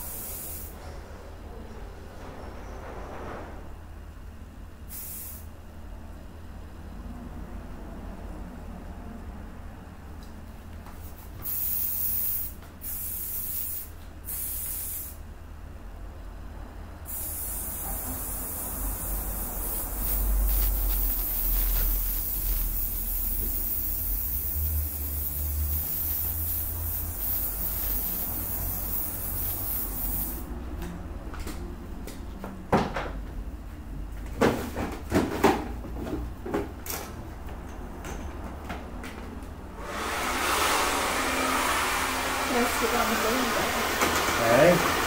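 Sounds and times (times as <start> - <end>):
hairspray hissing: 0.0 - 0.7, 11.4 - 15.2, 17.1 - 30.5
hair dryer blowing: 39.8 - 45.0.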